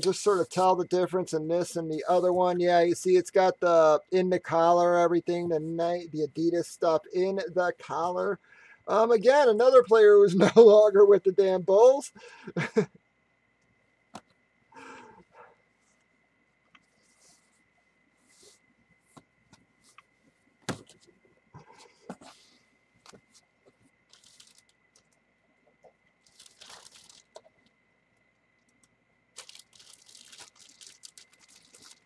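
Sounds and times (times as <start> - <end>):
rustling of packaging: 21.7 - 25.1, 26.2 - 27.7, 28.7 - 32.0.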